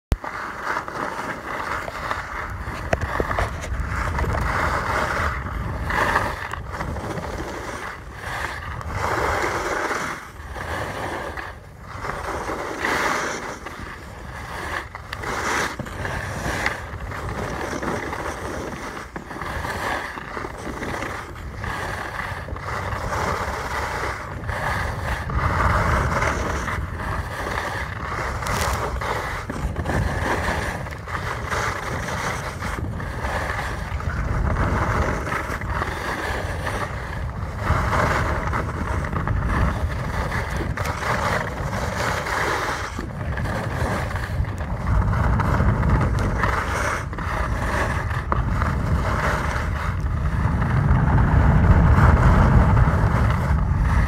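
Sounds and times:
skis scraping over snow: 0:00.1 - 0:54.0
wind rumbling on microphone: 0:00.1 - 0:54.0.

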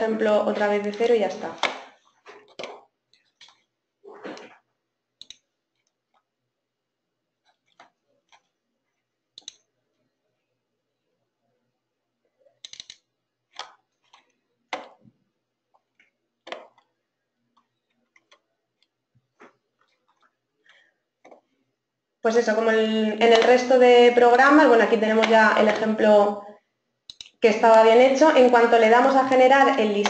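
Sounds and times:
computer mouse clicks: 0:02.5 - 0:03.7, 0:05.2 - 0:06.3, 0:07.4 - 0:08.6, 0:09.3 - 0:09.7, 0:12.6 - 0:15.0, 0:17.6 - 0:18.9, 0:27.1 - 0:27.4.

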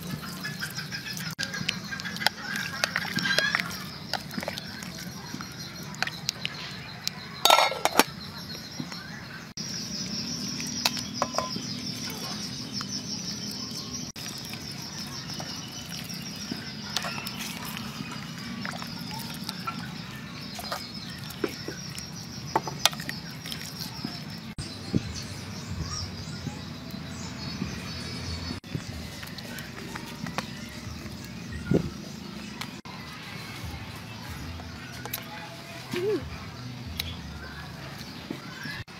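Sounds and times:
spoon scraping cooking pot: 0:07.4 - 0:08.2.

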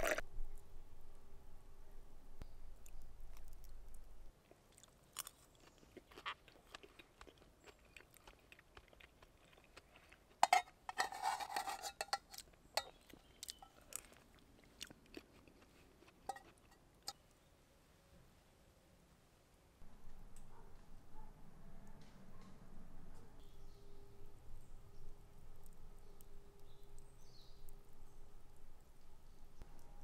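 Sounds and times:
person chewing: 0:00.0 - 0:00.2, 0:04.4 - 0:10.9, 0:12.1 - 0:17.2.

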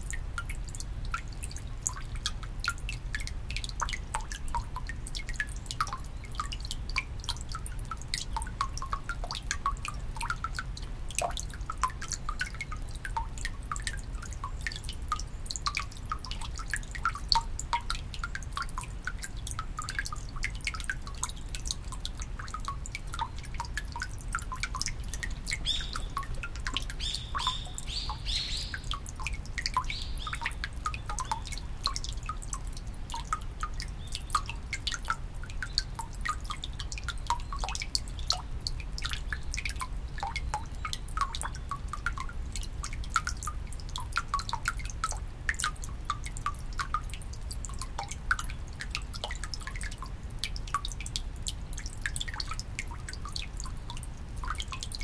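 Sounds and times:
small bird chirping: 0:25.6 - 0:26.3, 0:27.0 - 0:29.0.

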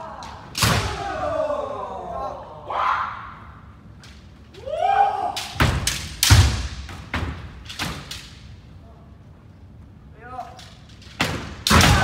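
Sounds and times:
bamboo swords striking armour: 0:11.2 - 0:12.0.

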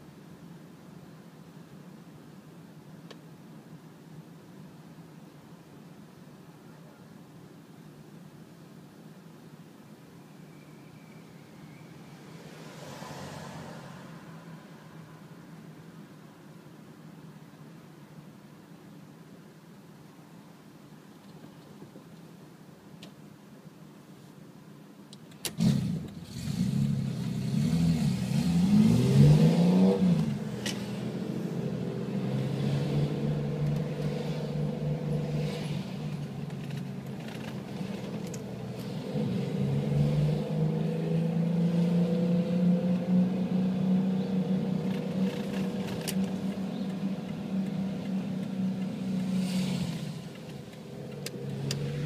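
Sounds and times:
race car engine revving: 0:25.6 - 0:36.3, 0:37.6 - 0:52.0.

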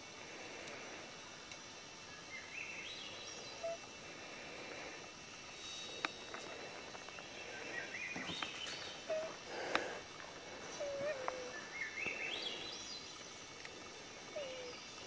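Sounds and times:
faint outdoor ambience: 0:00.0 - 0:15.0
bird calling: 0:02.2 - 0:03.9, 0:07.4 - 0:13.2, 0:14.3 - 0:15.0.

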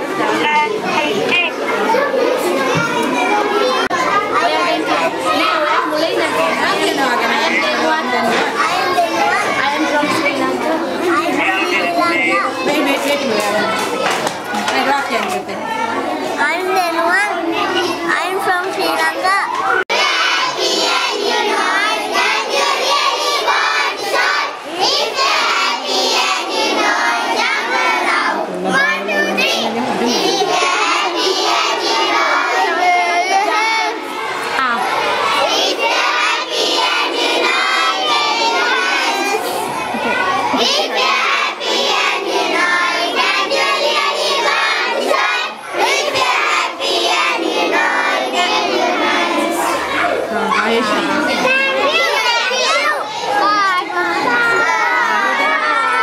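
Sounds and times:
children singing together: 0:17.3 - 0:56.0.

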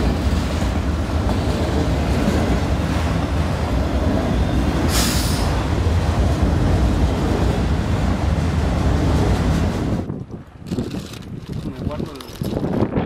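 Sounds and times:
train wheels rumbling on rails: 0:00.0 - 0:13.0
brief hiss: 0:04.9 - 0:05.5.

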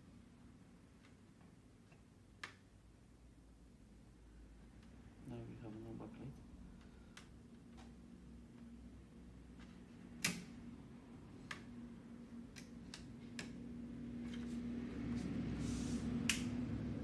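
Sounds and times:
steady low hum: 0:00.0 - 0:17.0
cable connectors clicking: 0:12.4 - 0:13.6.

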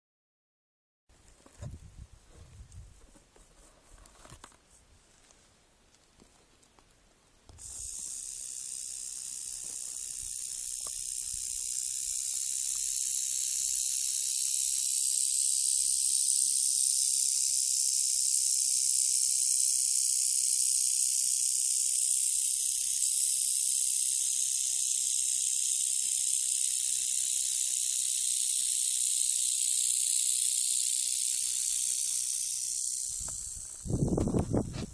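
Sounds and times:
rattlesnake rattling: 0:07.5 - 0:34.9.

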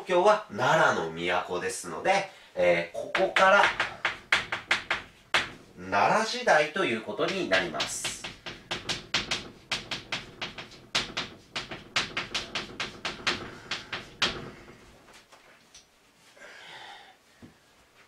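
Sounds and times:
chalk tapping and scratching on blackboard: 0:03.1 - 0:05.8, 0:07.2 - 0:15.0.

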